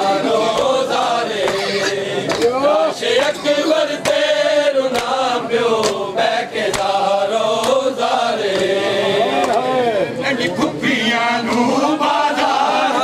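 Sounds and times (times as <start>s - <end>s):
men chanting a lament: 0.0s - 13.0s
hand slaps on bare chests: 1.4s - 1.7s, 2.3s - 2.6s, 4.0s - 4.3s, 4.9s - 5.2s, 5.8s - 6.0s, 6.7s - 7.0s, 7.6s - 7.8s, 8.5s - 8.8s, 9.4s - 9.7s.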